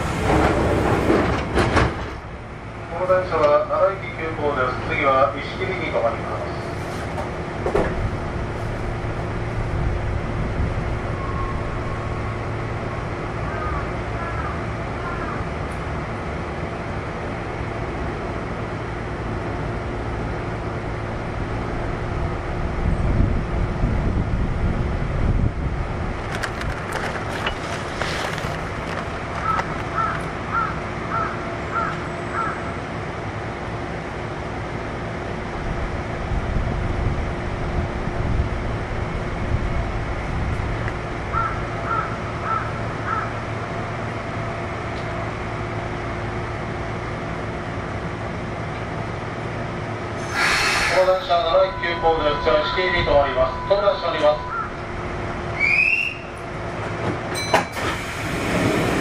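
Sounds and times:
electric train equipment humming: 0.0s - 59.0s.

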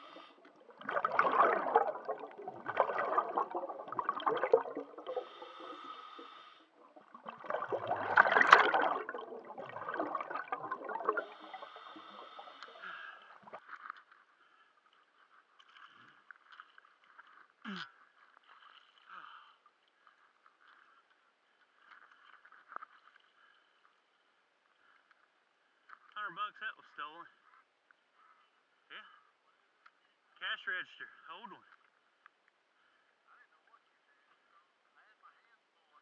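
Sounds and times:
water gurgling and bubbling: 0.0s - 13.6s.

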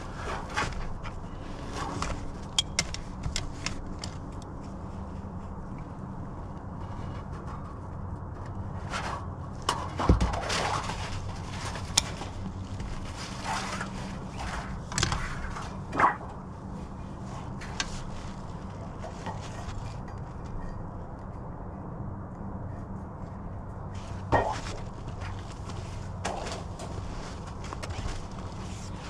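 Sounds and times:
steady low hum: 0.0s - 29.0s
metal and tools knocking and clanking: 0.2s - 4.6s, 24.2s - 28.4s.

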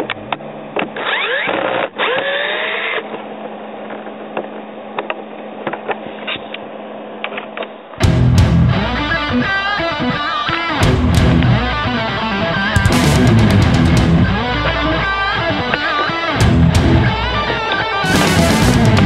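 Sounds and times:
electric guitar lead lines: 8.0s - 19.0s
rock music: 8.0s - 19.0s.

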